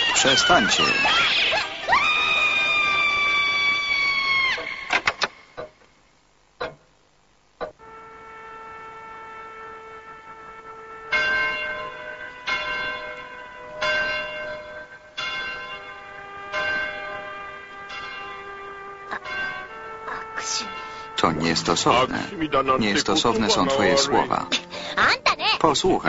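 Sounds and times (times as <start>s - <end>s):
church bell tolling: 11.1s - 24.6s.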